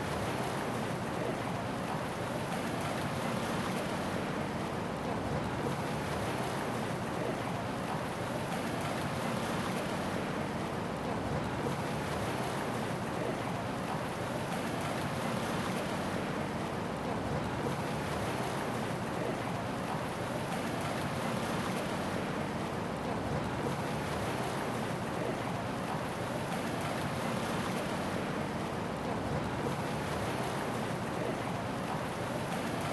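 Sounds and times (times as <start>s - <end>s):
hum of city noise: 0.0s - 32.9s
sea waves washing in: 0.0s - 32.9s.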